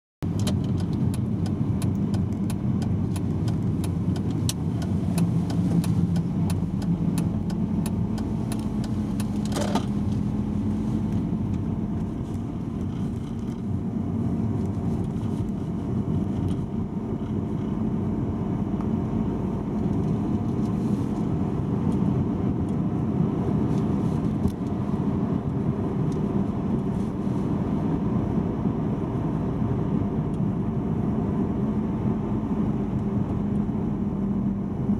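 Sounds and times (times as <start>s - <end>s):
car engine and tyre rumble: 0.2s - 34.9s
light ticks: 0.4s - 9.5s.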